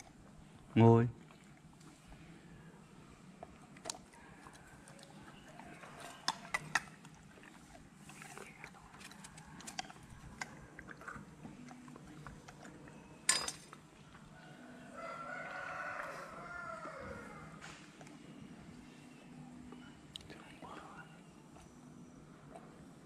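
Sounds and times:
dog chewing with wet smacks: 0:03.3 - 0:14.3.

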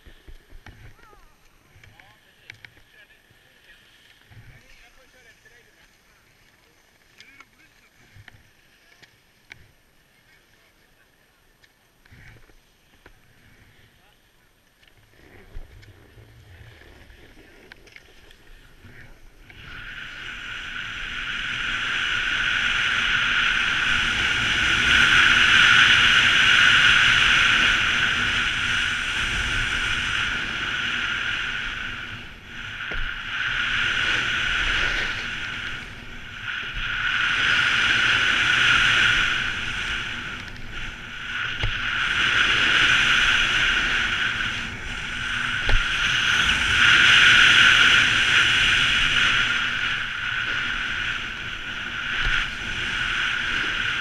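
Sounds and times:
snowboard hissing on snow: 0:19.5 - 0:54.0.

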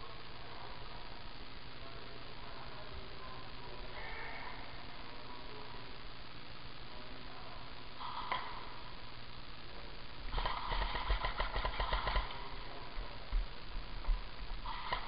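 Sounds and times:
airsoft gun firing bursts: 0:10.3 - 0:12.4, 0:14.6 - 0:15.0.

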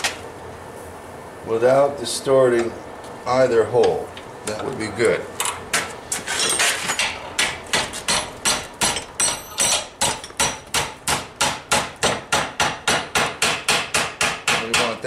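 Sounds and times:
hammer striking hot steel: 0:05.7 - 0:15.0.

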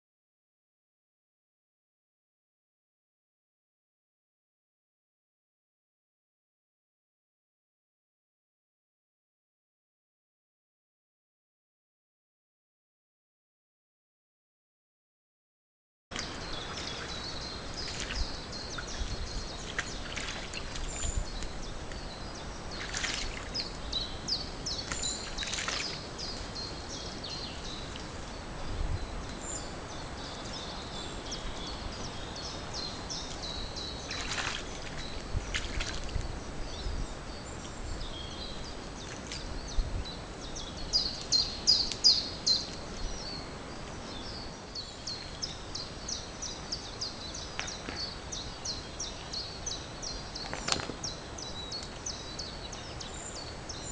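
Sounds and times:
songbirds chirping and singing: 0:16.2 - 0:53.9.

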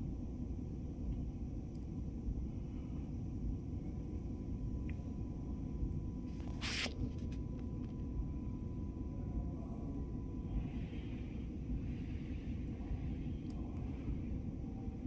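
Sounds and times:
short rustle: 0:06.3 - 0:07.3.

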